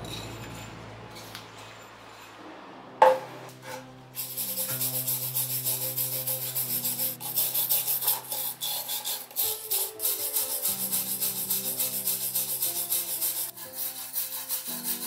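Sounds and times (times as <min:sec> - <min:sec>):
wire brush scrubbing metal: 0:03.0 - 0:15.0
soft background music: 0:03.2 - 0:15.0.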